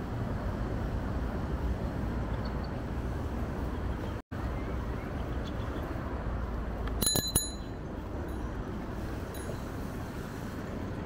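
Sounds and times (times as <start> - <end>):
road traffic: 0.0 - 11.0
bicycle bell ringing: 7.0 - 8.6, 9.3 - 9.8.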